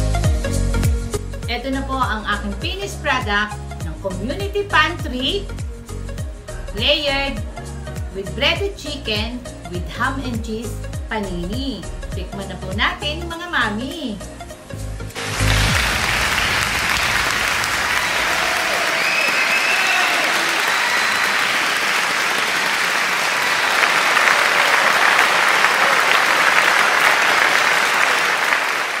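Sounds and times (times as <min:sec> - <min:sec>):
crowd applauding: 0:15.1 - 0:29.0.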